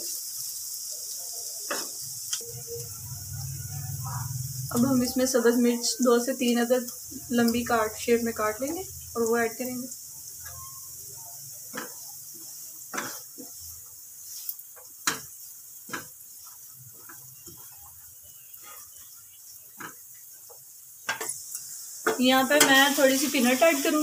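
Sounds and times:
food sizzling in oil: 0.0s - 24.0s
wooden spatula scraping pan: 18.5s - 19.1s.

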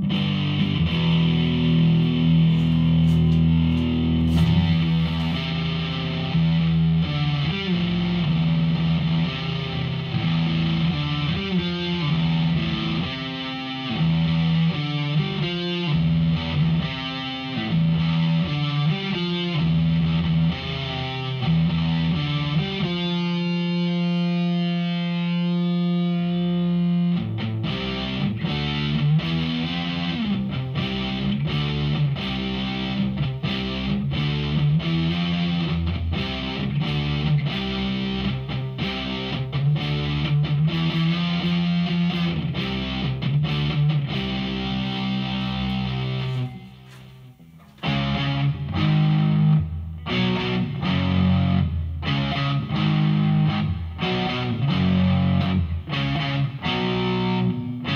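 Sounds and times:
distorted electric guitar riffs: 0.0s - 57.9s.

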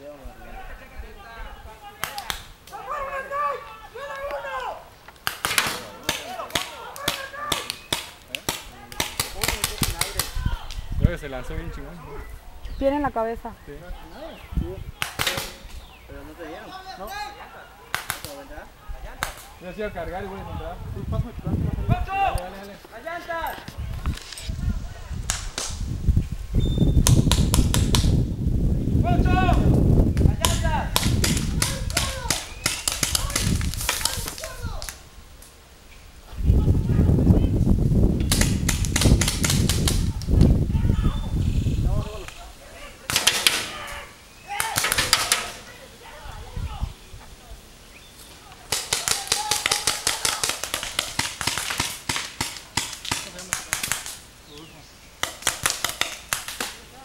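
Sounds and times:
paintball markers firing: 5.1s - 10.4s, 15.0s - 15.6s, 17.9s - 18.4s, 30.4s - 35.0s, 38.2s - 40.0s, 44.6s - 45.6s, 48.7s - 54.2s, 55.2s - 56.8s
low microphone rumble: 36.1s - 42.2s.

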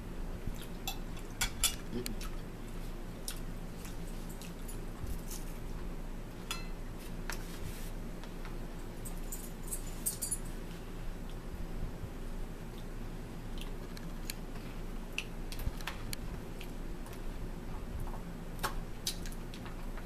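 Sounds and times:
steady low hum: 0.0s - 20.0s
forks clinking on plate and bowl: 6.5s - 6.8s.

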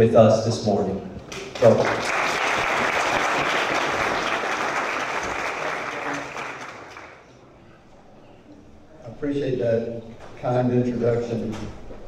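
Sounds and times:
audience applauding: 1.3s - 7.3s.

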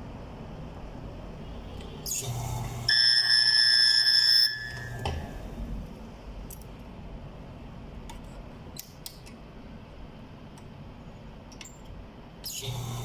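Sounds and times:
loud electronic buzz: 2.0s - 5.0s.

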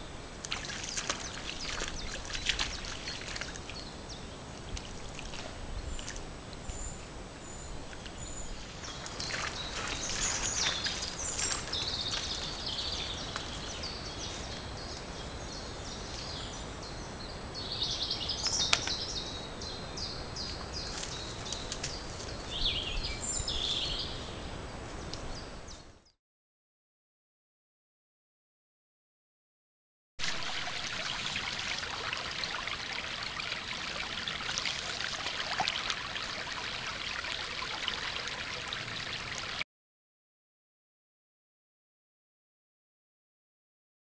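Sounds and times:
outdoor hiss: 0.0s - 26.0s, 30.2s - 39.6s
songbirds chirping and singing: 6.6s - 25.9s.

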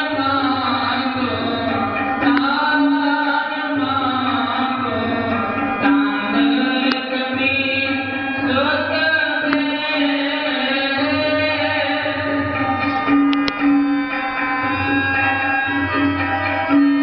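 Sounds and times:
person singing devotional song: 0.0s - 12.4s
instrumental accompaniment: 0.0s - 17.0s.

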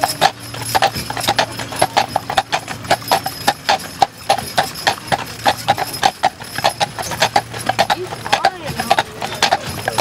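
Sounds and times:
horse hooves clip-clopping on road: 0.0s - 10.0s.

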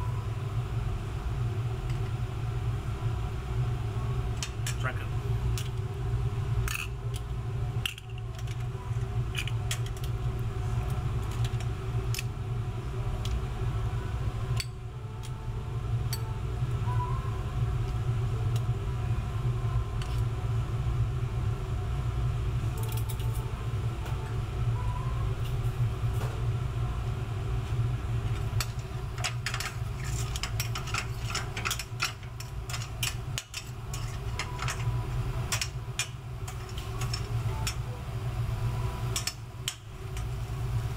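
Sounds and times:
low roar of burners and fans: 0.0s - 40.9s
metal utensils clinking on pan: 28.6s - 34.9s.

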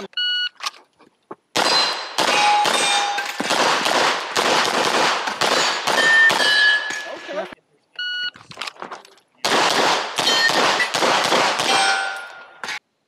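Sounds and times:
pistol shots: 1.5s - 7.1s, 9.4s - 12.8s
steel targets clanging: 1.6s - 3.5s, 5.5s - 7.6s, 10.2s - 10.9s, 11.6s - 12.8s
start beep: 8.0s - 8.4s.

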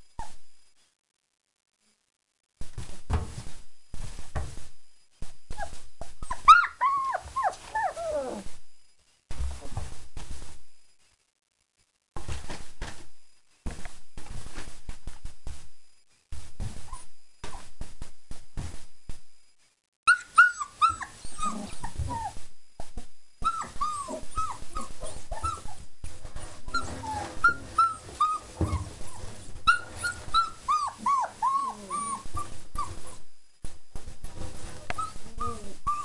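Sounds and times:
puppies whining and yipping: 5.5s - 8.5s, 20.1s - 22.4s, 23.4s - 25.8s, 26.6s - 33.2s, 34.8s - 36.0s.

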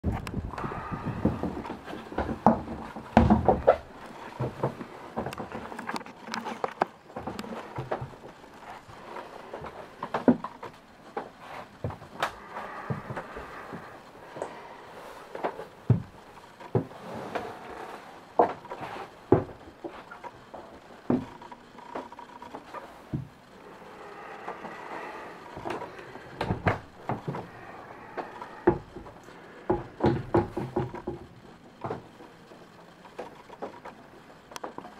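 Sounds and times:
knocks and bumps: 0.1s - 8.4s, 25.6s - 32.1s
knocks and thumps in cabin: 29.7s - 32.1s.

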